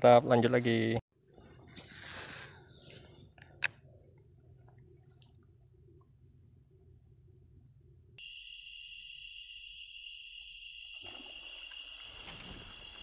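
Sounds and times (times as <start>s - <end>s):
insects droning high-pitched: 1.1s - 13.0s
lower-pitched insect drone: 1.1s - 13.0s
sharp click: 3.3s - 4.0s.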